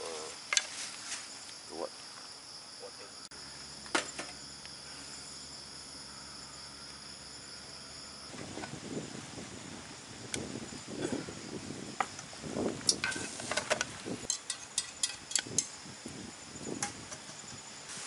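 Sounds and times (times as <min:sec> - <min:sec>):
crickets chirring: 0:00.0 - 0:18.0
metal tin clinking on stove: 0:14.3 - 0:15.7.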